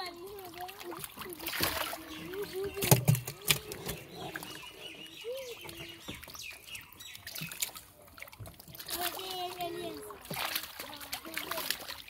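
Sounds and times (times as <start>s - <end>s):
fish splashing in water: 0.0s - 12.0s
animal calls and chirps: 3.6s - 7.6s.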